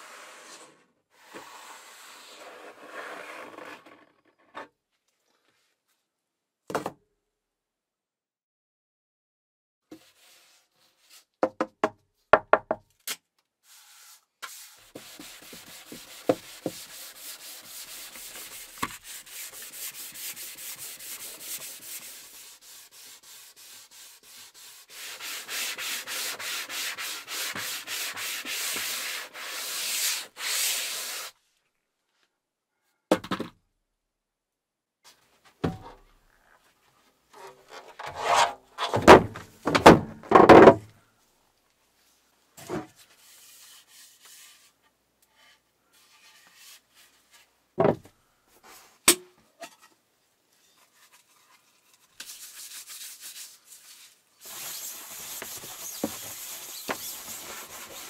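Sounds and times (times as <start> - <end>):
sponge rubbing on smooth surface: 10.0 - 11.2, 13.7 - 31.3, 43.1 - 44.8, 51.0 - 58.0
knocks and handling sounds: 35.1 - 40.9, 47.3 - 50.0.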